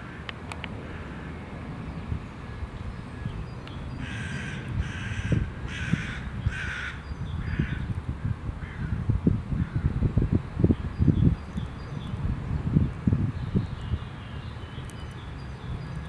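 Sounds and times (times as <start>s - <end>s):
crow cawing: 0.0s - 0.3s, 4.0s - 7.8s.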